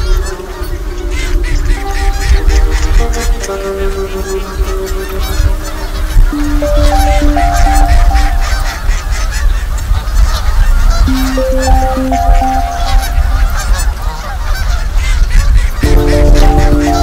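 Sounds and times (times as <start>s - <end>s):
soft music notes: 0.0s - 9.4s, 10.9s - 14.8s, 15.8s - 17.0s
geese honking: 0.0s - 17.0s
wind on microphone: 13.1s - 17.0s.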